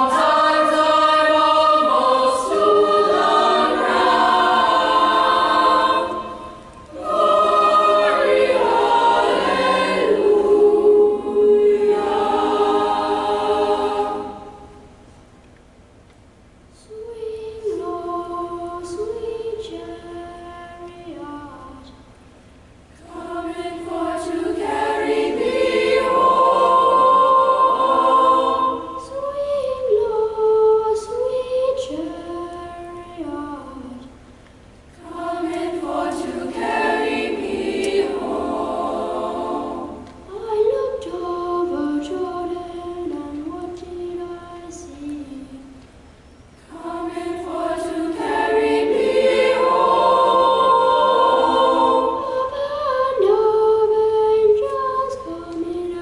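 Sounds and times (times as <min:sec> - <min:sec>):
boys' choir singing in harmony: 0:00.0 - 0:14.9, 0:16.9 - 0:21.3, 0:23.0 - 0:34.0, 0:35.0 - 0:45.8, 0:46.6 - 0:56.0.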